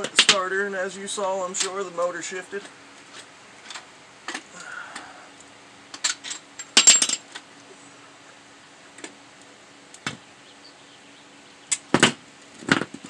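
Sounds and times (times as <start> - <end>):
metal tools clinking and clanking: 6.0 - 7.4.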